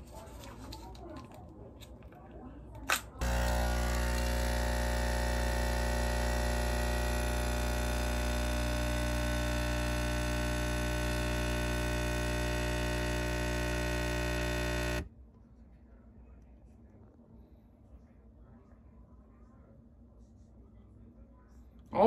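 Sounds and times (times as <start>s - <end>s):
espresso machine pump buzzing: 3.2s - 15.1s.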